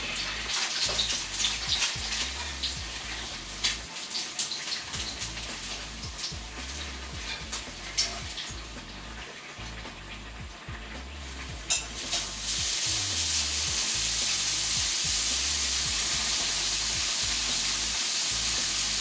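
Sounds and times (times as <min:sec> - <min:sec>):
ham sizzling in a pan: 0:00.0 - 0:19.0
soft background music: 0:00.0 - 0:19.0.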